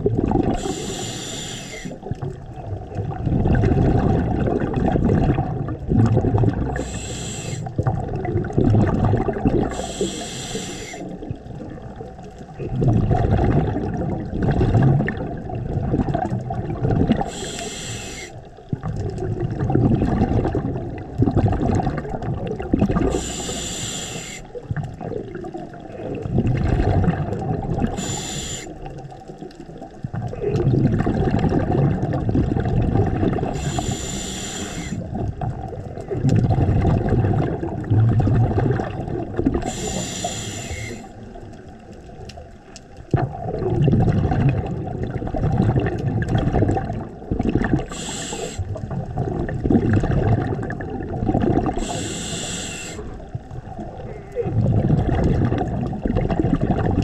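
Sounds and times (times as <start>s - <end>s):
exhaled air bubbling: 0.0s - 57.0s
regulator inhalation hisses: 0.6s - 2.0s, 6.8s - 7.7s, 9.7s - 11.1s, 17.2s - 18.4s, 23.1s - 24.5s, 27.9s - 28.8s, 33.5s - 35.1s, 39.6s - 41.1s, 47.9s - 48.7s, 51.8s - 53.1s.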